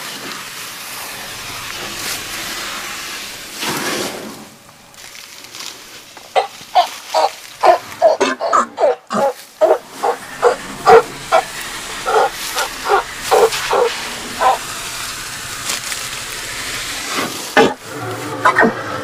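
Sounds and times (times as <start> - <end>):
steady rushing noise: 0.0 - 8.0, 9.4 - 19.0
short animal calls: 6.4 - 14.7.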